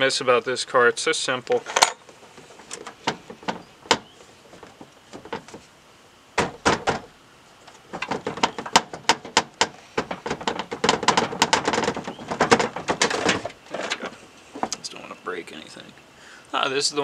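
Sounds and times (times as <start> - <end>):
sharp knocks: 1.8 - 5.7, 6.4 - 7.1, 7.7 - 14.8.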